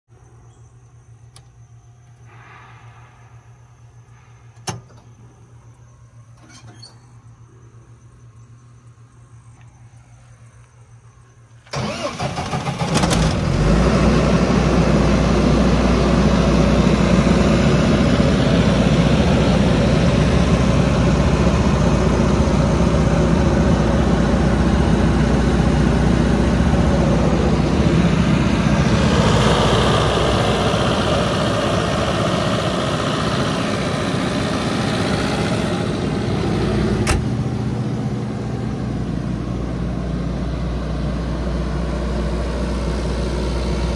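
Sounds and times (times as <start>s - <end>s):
diesel generator engine running: 0.4s - 43.9s
engine cranking: 11.7s - 13.8s.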